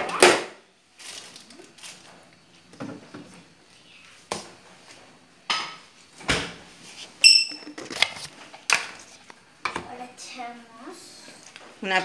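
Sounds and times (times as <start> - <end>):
ringing clink of dish: 7.2 - 7.6.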